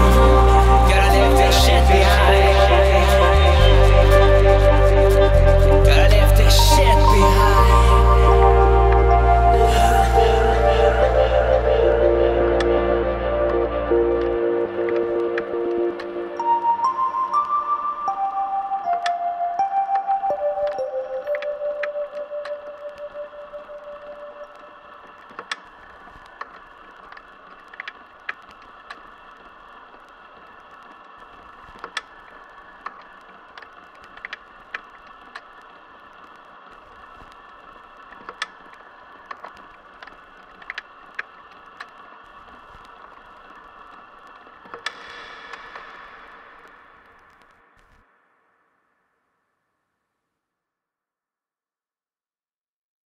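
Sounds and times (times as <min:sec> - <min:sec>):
ambient drone of held tones: 0:00.0 - 0:26.3
sharp clicks and crackles: 0:18.9 - 0:48.1.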